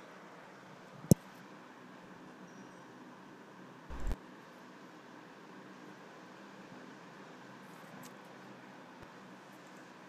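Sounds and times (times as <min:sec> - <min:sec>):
microphone hiss: 0:03.9 - 0:04.2.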